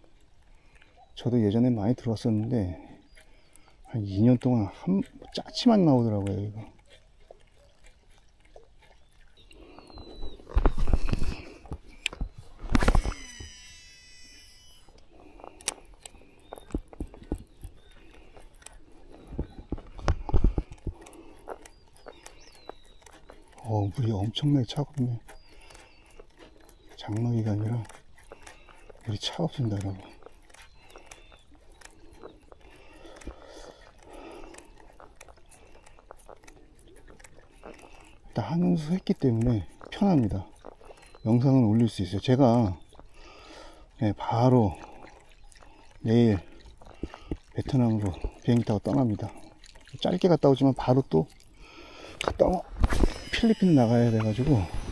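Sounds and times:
fishing reel clicks and rustling: 12.0s - 16.1s
fabric rubbing on microphone: 52.7s - 54.9s.

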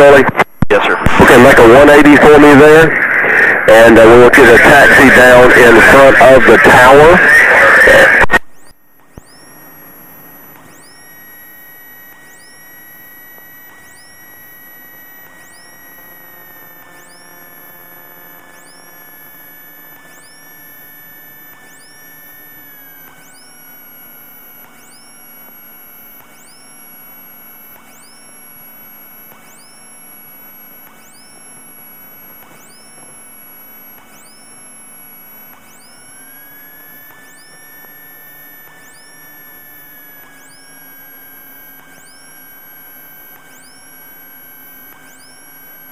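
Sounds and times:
electrical whine gliding in pitch: 0.0s - 45.9s.

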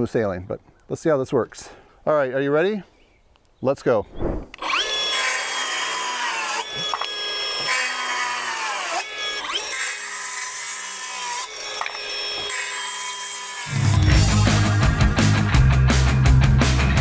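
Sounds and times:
circular saw cutting wood: 4.5s - 14.7s.

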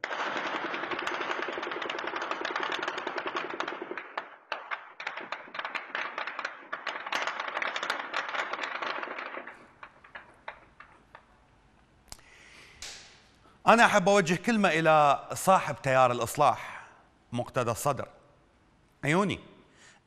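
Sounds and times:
automatic gunfire: 0.0s - 4.4s.

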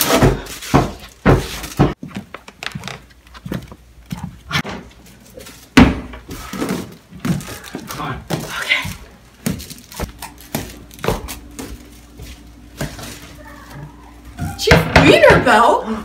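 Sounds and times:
footsteps on wooden floor: 0.1s - 5.1s, 8.2s - 14.6s.

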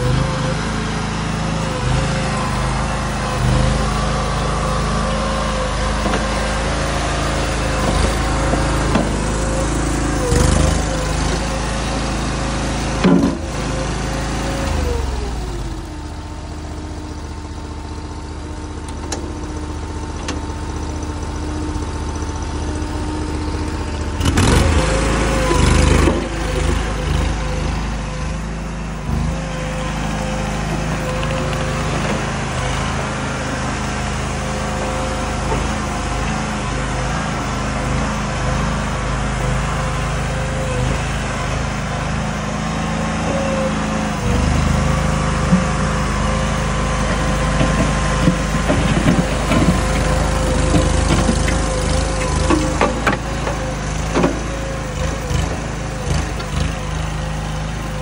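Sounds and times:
small engine revving: 0.0s - 17.4s, 18.6s - 58.0s.

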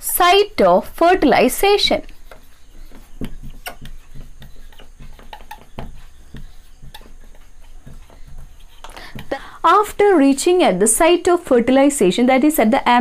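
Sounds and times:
marker pen writing on whiteboard: 0.2s - 9.8s.

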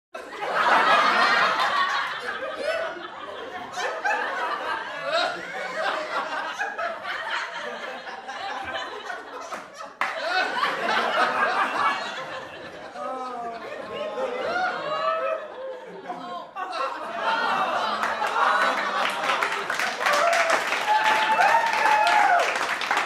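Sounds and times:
people laughing: 0.2s - 23.0s.

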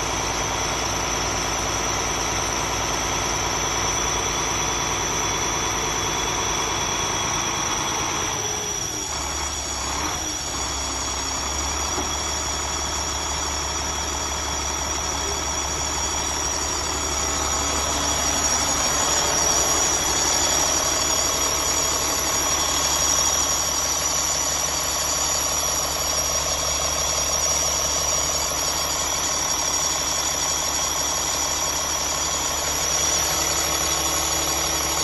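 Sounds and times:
diesel engine idling: 0.0s - 35.0s.

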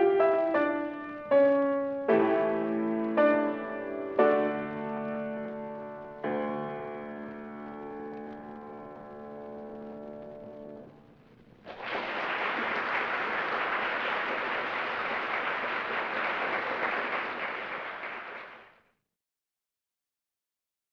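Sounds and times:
audience applause: 11.6s - 18.8s.

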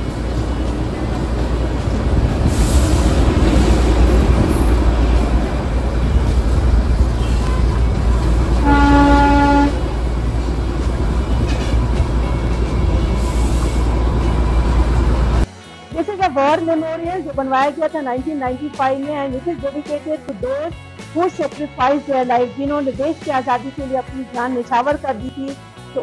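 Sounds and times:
train engine and wheels rumbling: 0.0s - 15.5s
train horn: 7.1s - 10.1s.

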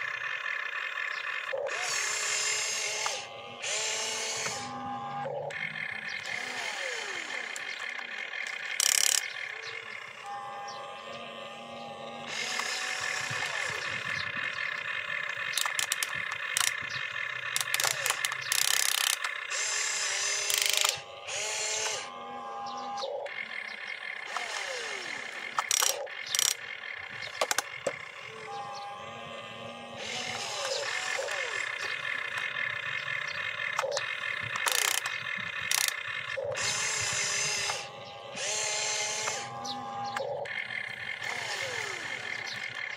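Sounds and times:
harsh grinding: 0.0s - 42.9s
toy electric motors whining: 0.0s - 42.9s
sharp clicking: 7.5s - 9.7s, 12.3s - 19.7s, 20.4s - 22.0s, 25.5s - 28.0s, 30.0s - 38.6s.

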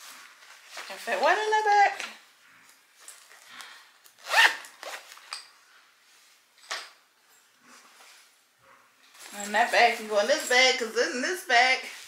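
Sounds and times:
zipper being pulled: 4.1s - 5.2s.

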